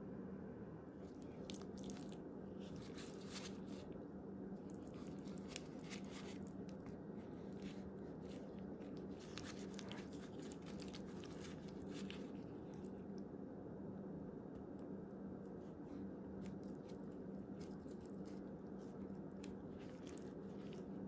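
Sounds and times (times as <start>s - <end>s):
faint steady hum: 0.0s - 21.0s
wet squishing of meat: 1.0s - 3.9s, 4.6s - 13.0s, 16.4s - 21.0s.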